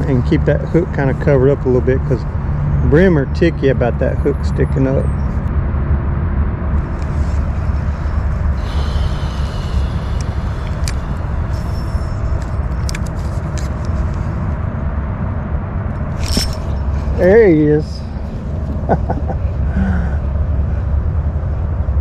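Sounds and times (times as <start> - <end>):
electric motor humming: 6.8 - 13.0
fishing reel whirring: 6.8 - 13.8, 16.1 - 17.7.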